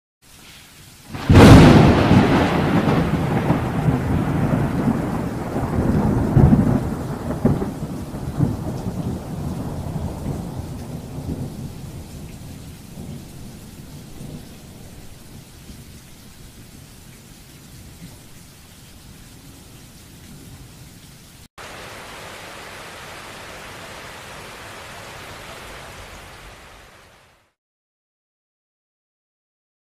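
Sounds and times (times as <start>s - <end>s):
rain hissing: 0.2s - 27.6s
thunder rumbling: 1.1s - 15.4s, 21.6s - 27.2s.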